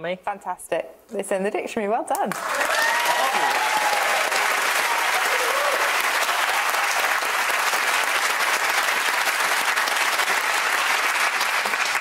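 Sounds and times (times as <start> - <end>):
audience applauding: 2.3 - 12.0.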